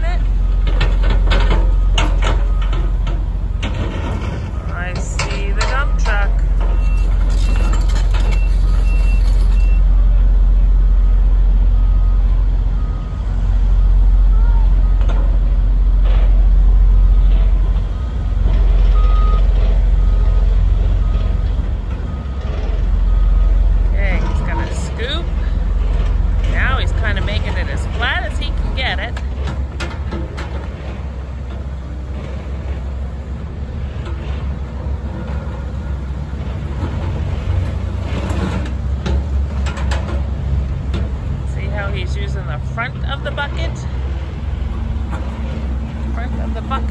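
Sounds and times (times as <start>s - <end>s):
diesel machinery rumble: 0.0s - 46.9s
back-up alarm beeping: 4.9s - 9.9s, 17.9s - 21.4s.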